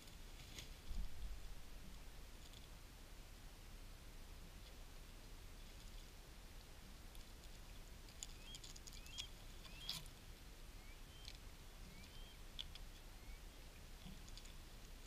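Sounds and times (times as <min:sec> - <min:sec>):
beaks pecking on rock: 0:07.1 - 0:10.2
bird chirping: 0:07.6 - 0:10.1, 0:10.7 - 0:14.6.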